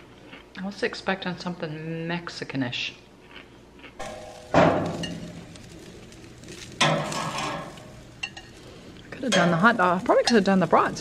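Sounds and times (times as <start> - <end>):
metal tongs knocking on grill grate: 4.0 - 5.6, 6.8 - 8.5, 9.2 - 10.7
metal clatter: 4.0 - 8.5.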